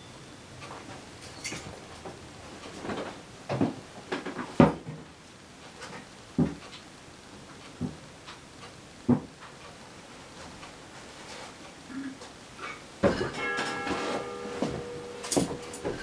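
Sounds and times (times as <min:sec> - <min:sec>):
objects knocking and clunking: 0:02.7 - 0:05.1, 0:12.6 - 0:16.0.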